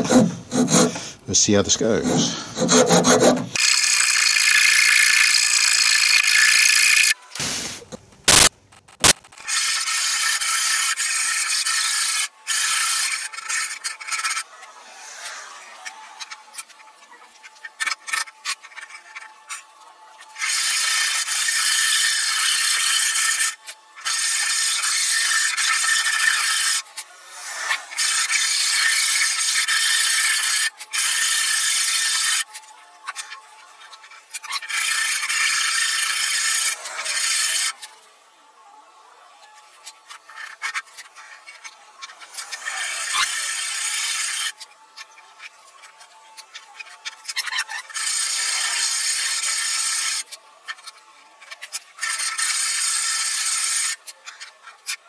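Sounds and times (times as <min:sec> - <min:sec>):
hand file scraping wood: 0:00.0 - 0:06.7, 0:09.4 - 0:37.9.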